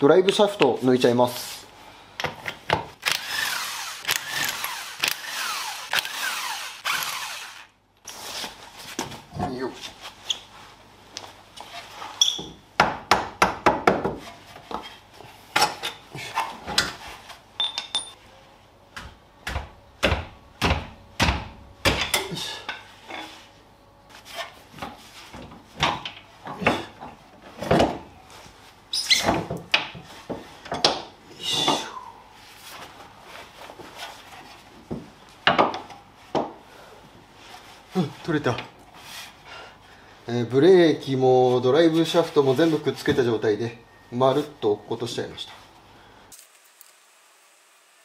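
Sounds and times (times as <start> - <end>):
metal parts clinking and knocking: 17.6 - 18.2.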